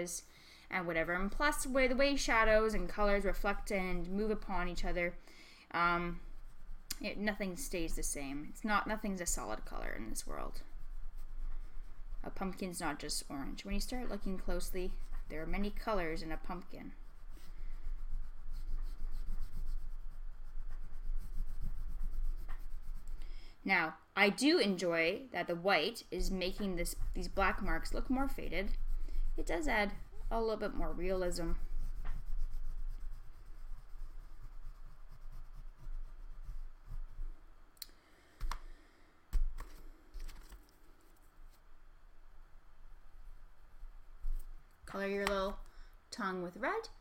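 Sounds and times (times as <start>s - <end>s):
oil pastel scribbling on paper: 0.9s - 5.2s, 5.9s - 23.4s, 26.2s - 37.4s.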